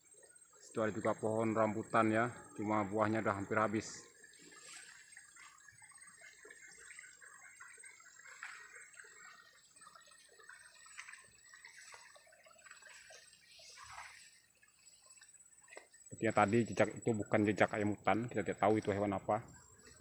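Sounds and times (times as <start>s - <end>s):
soft ticks and rustles: 3.7s - 17.9s.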